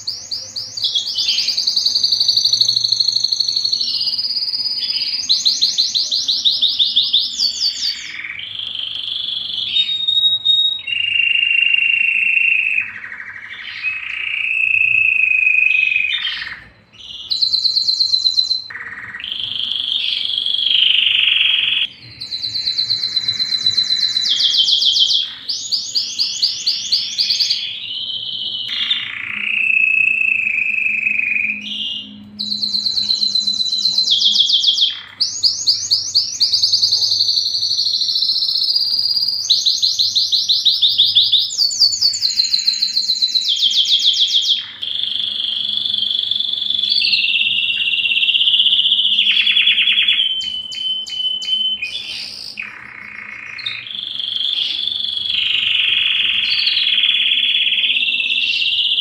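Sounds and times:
canary singing rolling trills: 0.0 - 59.0.

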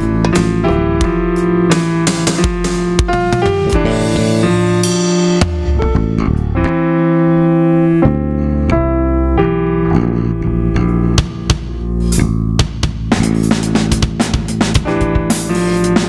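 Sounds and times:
electronic drum hits: 0.0 - 6.8, 11.2 - 16.0
funk band playing: 0.0 - 7.3, 10.6 - 16.0.

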